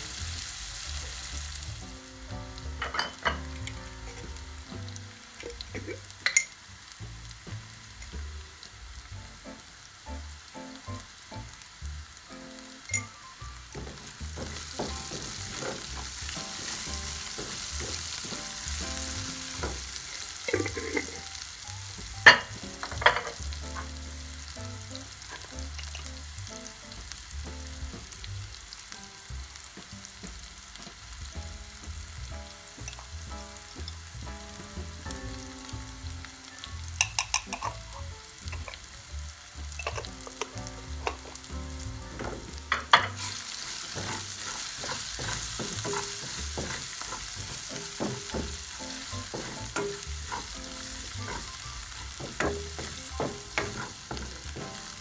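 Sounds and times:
onions sizzling in a pan: 0:00.0 - 0:55.0
spoon knocking and clicking: 0:37.0 - 0:37.8, 0:39.8 - 0:41.3.

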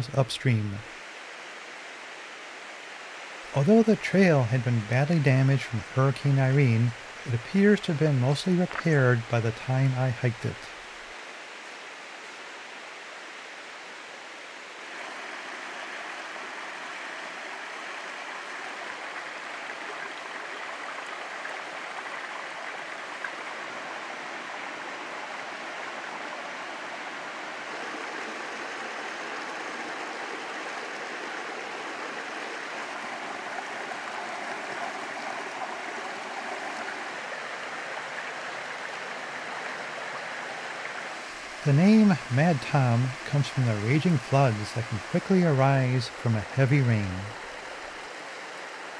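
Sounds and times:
brook running over stones: 0:14.8 - 0:48.9.

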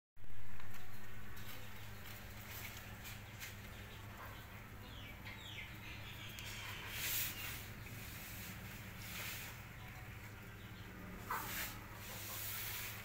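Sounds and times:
rustling: 0:00.2 - 0:04.3, 0:06.3 - 0:10.1, 0:11.2 - 0:13.0
steady low hum: 0:00.2 - 0:13.0
chick peeping: 0:03.0 - 0:13.0.

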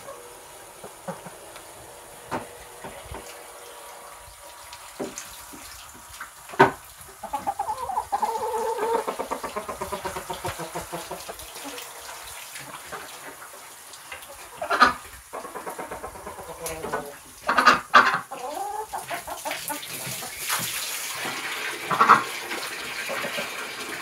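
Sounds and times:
hen clucking: 0:00.0 - 0:04.6, 0:06.6 - 0:20.4, 0:21.9 - 0:22.3
hose hissing into plastic waterer: 0:00.0 - 0:17.6, 0:18.4 - 0:24.0.

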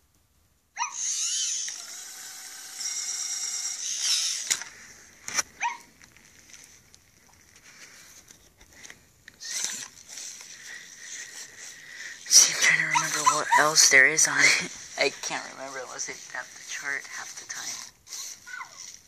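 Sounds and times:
robot toy motors whirring: 0:00.8 - 0:05.8, 0:09.4 - 0:19.0
sharp clicks: 0:01.0 - 0:05.5.

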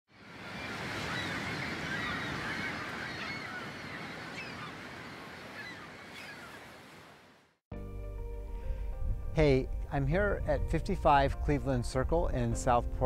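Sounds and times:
flock of birds calling: 0:00.4 - 0:06.9.

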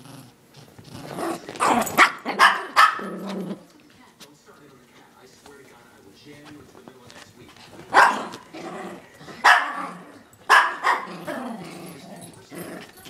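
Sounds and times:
dogs barking: 0:01.6 - 0:03.6, 0:07.9 - 0:11.5.

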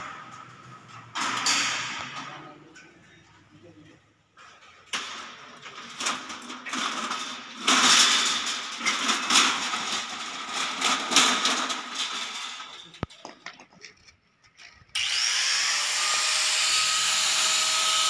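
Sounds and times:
metal roll-up shutter rattling: 0:04.4 - 0:14.6.

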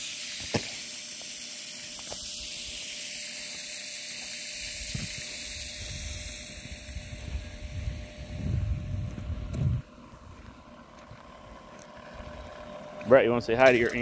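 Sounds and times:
water jetting onto pavement: 0:00.0 - 0:07.2
wind on microphone: 0:04.7 - 0:10.4.

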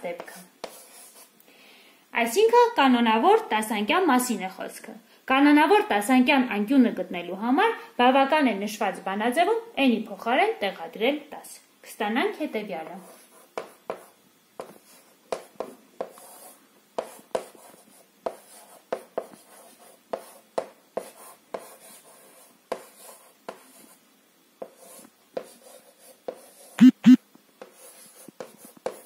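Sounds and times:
chalk scratching on a chalkboard: 0:00.0 - 0:01.3, 0:12.8 - 0:24.0, 0:24.6 - 0:26.8, 0:27.6 - 0:29.0.

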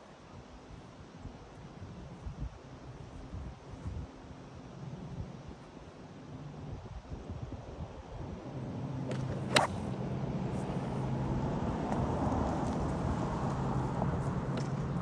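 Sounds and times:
golf club striking ball: 0:09.1 - 0:10.0.

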